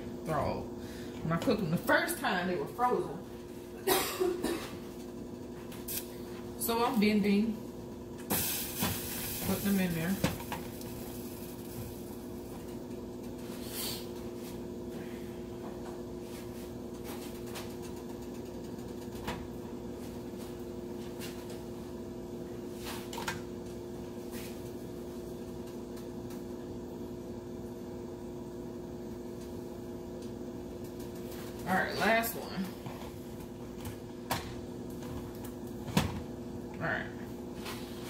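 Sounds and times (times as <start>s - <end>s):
steady mechanical hum: 0.0s - 38.0s.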